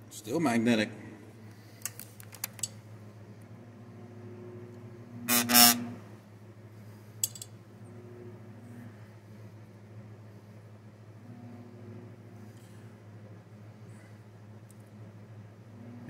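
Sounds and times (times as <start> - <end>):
demagnetizer humming: 3.5 - 6.3, 11.1 - 12.6
loud brief buzz: 5.3 - 6.0.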